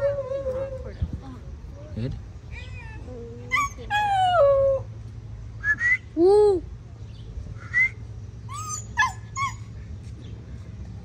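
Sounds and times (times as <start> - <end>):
wild dog yelping and whining: 2.6 - 4.9, 8.5 - 9.7.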